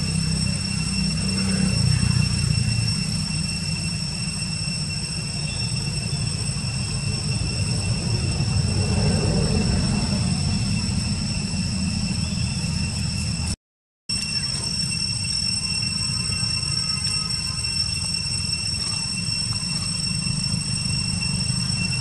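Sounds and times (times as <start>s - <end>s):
low rumble: 0.0s - 13.6s
high-pitched whine: 0.0s - 22.0s.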